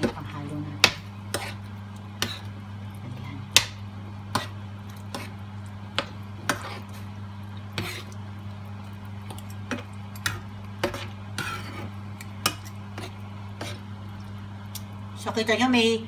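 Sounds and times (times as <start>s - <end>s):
spoon scraping frying pan: 0.0s - 2.6s, 4.3s - 5.4s, 6.0s - 7.1s, 7.7s - 8.2s, 9.3s - 13.9s
steady low hum: 0.0s - 16.0s.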